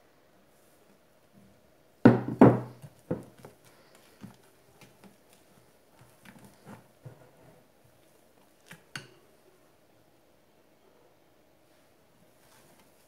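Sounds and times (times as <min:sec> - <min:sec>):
glass bowl knocking on worktop: 0:02.1 - 0:03.2.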